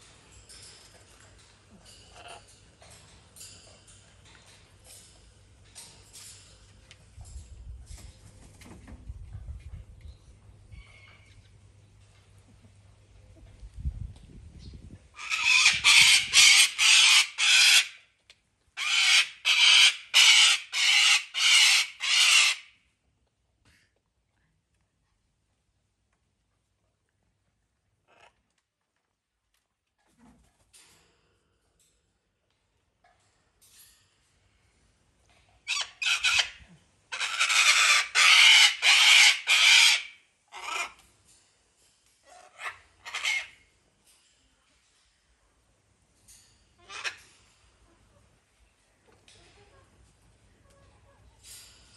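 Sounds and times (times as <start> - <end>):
cockatoo screeching: 15.2 - 18.0, 18.8 - 22.7, 35.7 - 41.0, 42.4 - 43.6.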